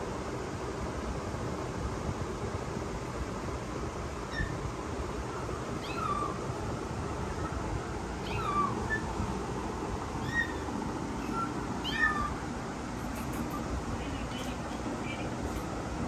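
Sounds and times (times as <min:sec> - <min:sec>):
kittens mewing: 0:05.6 - 0:06.5, 0:08.2 - 0:09.2, 0:10.2 - 0:12.5.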